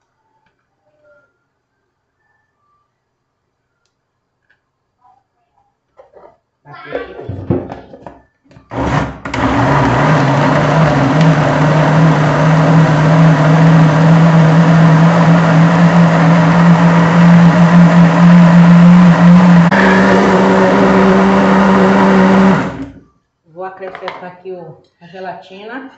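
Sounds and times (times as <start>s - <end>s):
blender motor whirring: 8.7s - 23.0s.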